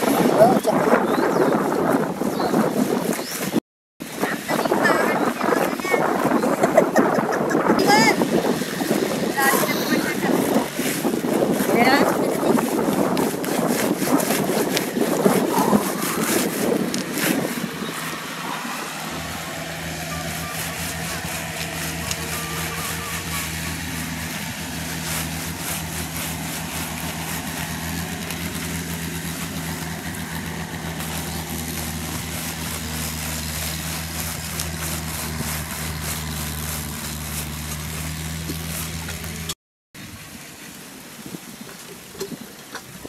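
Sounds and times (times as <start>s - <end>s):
engine idling: 15.0s - 39.6s.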